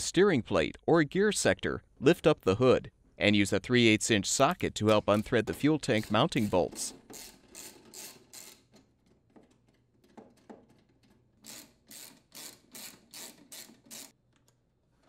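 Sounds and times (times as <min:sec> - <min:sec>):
socket ratchet clicking: 0:06.0 - 0:08.7, 0:11.4 - 0:14.2.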